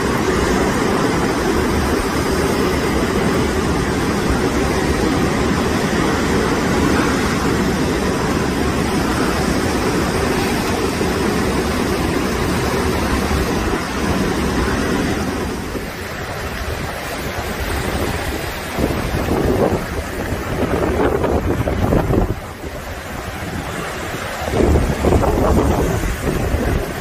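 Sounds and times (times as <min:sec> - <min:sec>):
storm wind: 0:00.0 - 0:27.0
waves breaking over seawall: 0:00.0 - 0:27.0.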